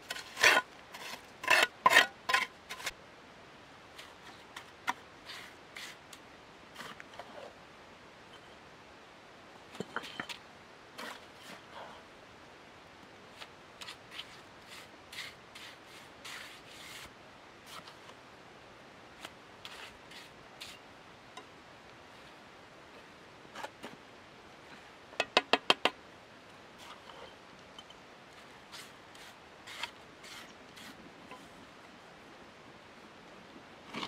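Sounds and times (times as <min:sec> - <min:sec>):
trowel scraping wet mortar: 0:00.0 - 0:02.9, 0:28.7 - 0:31.0.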